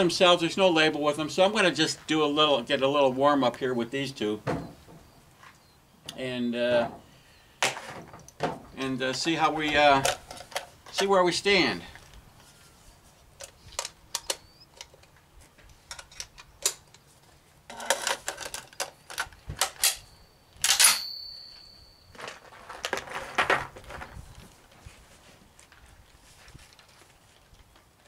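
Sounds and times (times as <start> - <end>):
rifle clicks and metallic clatter: 7.7 - 11.1, 13.4 - 17.1, 17.7 - 21.1
ringing metal clack: 19.8 - 22.4.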